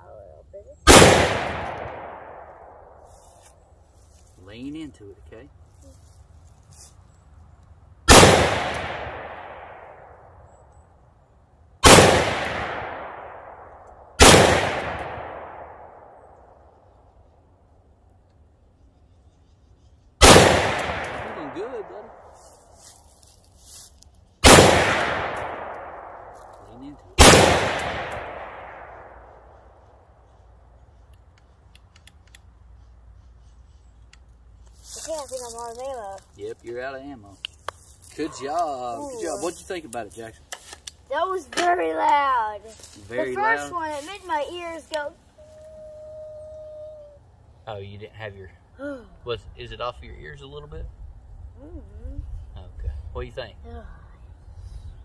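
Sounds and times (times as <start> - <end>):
gunshots with long echo: 0.9 - 3.1, 8.1 - 10.4, 11.8 - 16.7, 20.2 - 22.3, 24.4 - 26.6, 27.2 - 30.1
small sharp clicks: 31.0 - 32.6.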